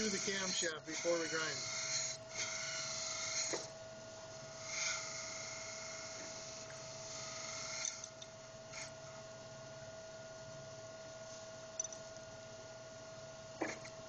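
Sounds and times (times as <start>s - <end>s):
grinding machine humming: 0.0s - 9.2s.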